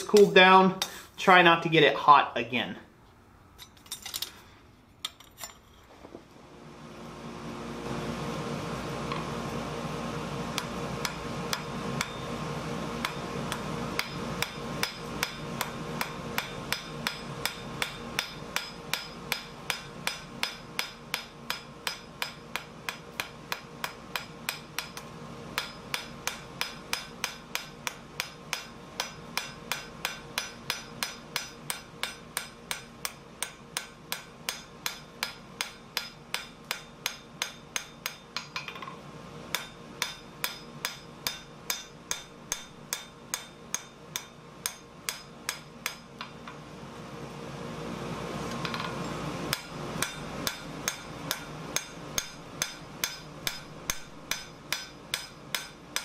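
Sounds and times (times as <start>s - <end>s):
hammer striking steel on anvil: 10.6s - 12.3s, 13.0s - 46.6s, 48.6s - 56.0s.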